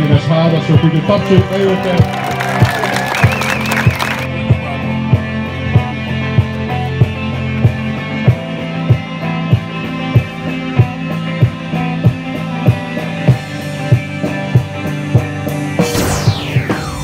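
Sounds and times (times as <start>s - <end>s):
rock background music: 0.0s - 17.0s
falling swoosh: 15.8s - 17.0s.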